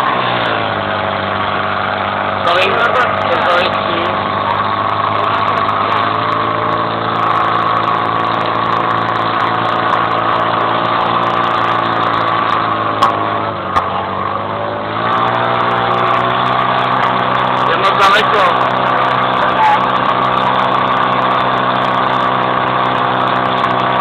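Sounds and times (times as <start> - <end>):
engine knocks: 0.0 - 24.0
pump engine running at high revs: 0.0 - 24.0.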